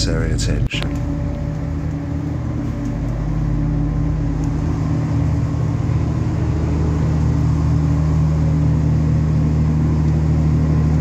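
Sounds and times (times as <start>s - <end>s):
diesel train engine idling: 0.0s - 11.0s.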